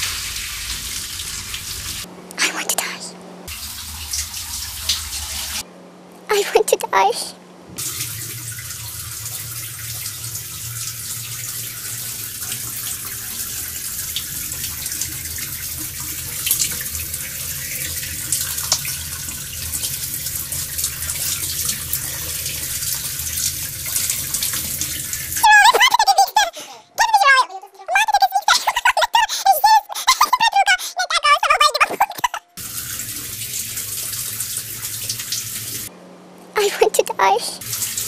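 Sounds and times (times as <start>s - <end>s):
shower water spraying: 0.0s - 2.1s, 3.5s - 5.6s, 7.8s - 25.5s, 32.6s - 35.9s, 37.6s - 38.0s
loud high-pitched voice: 2.4s - 3.2s, 6.3s - 7.4s, 25.4s - 32.4s, 36.6s - 37.6s.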